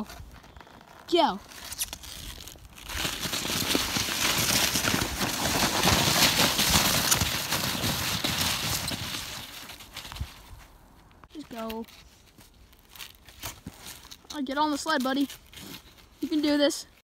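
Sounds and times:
sled scraping on icy snow: 0:00.0 - 0:10.6.

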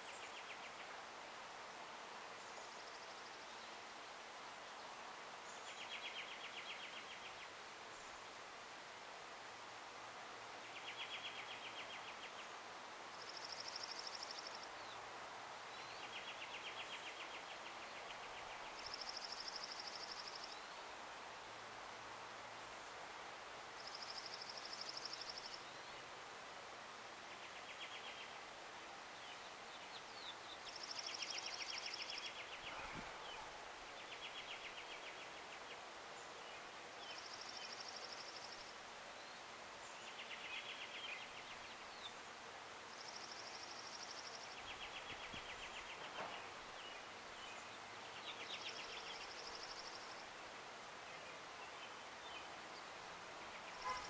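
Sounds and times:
outdoor hiss: 0:00.0 - 0:54.0
songbirds trilling: 0:29.2 - 0:36.3, 0:51.1 - 0:54.0.

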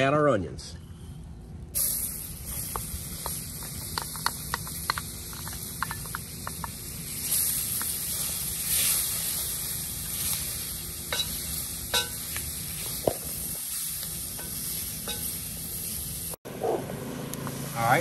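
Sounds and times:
onions sizzling in a pot: 0:01.8 - 0:16.4.

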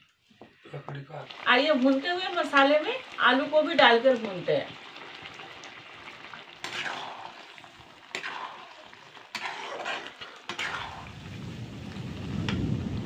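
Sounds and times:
food sizzling in a wok: 0:00.8 - 0:13.0.

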